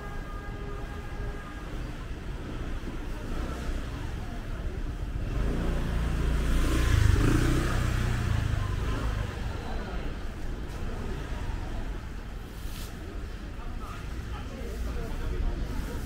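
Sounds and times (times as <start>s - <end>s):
traffic and market hum: 0.0s - 16.0s
vehicle engine passing by: 5.2s - 10.1s.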